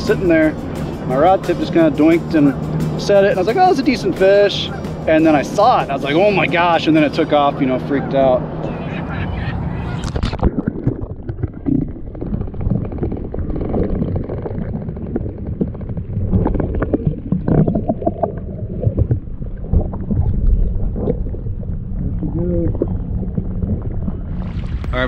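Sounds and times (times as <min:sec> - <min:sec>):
wind rumbling on microphone: 0:08.4 - 0:25.0
water lapping against kayak hull: 0:09.9 - 0:25.0.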